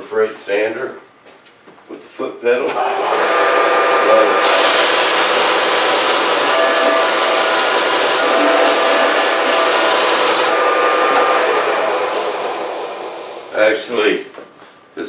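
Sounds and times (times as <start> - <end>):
bench sander whirring: 2.7 - 13.8
grit hissing on wood: 4.0 - 13.7.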